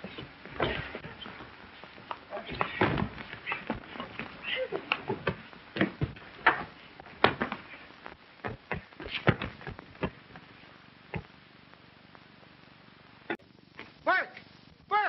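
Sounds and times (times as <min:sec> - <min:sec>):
film soundtrack hiss: 0:00.0 - 0:15.0
fistfight blows and thuds: 0:02.5 - 0:04.3, 0:05.2 - 0:07.7, 0:08.4 - 0:10.4.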